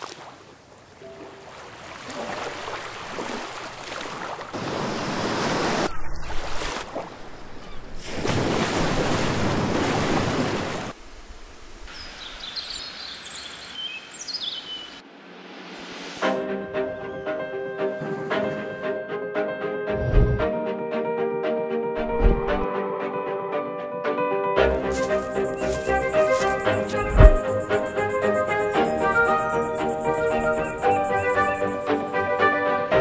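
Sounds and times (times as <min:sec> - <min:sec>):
sea waves breaking on shore: 0:00.0 - 0:12.7, 0:22.0 - 0:22.6, 0:24.8 - 0:32.4
birds chirping: 0:11.9 - 0:15.0, 0:24.8 - 0:32.5.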